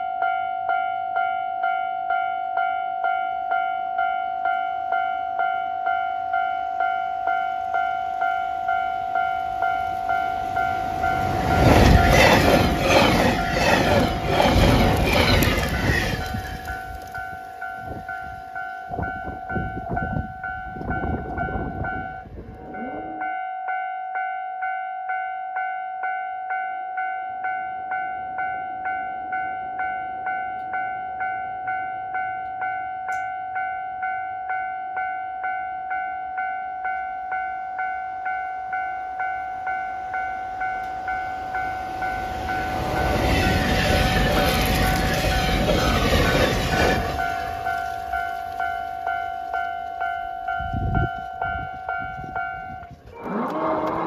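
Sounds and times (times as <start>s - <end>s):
level-crossing warning bell: 0.0s - 53.5s
train rumble: 6.8s - 23.2s, 38.7s - 54.0s.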